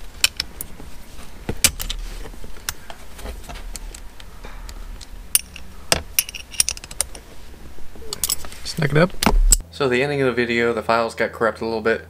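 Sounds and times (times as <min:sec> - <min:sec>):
metal tools clicking and clinking: 0:02.7 - 0:07.3, 0:08.1 - 0:08.5.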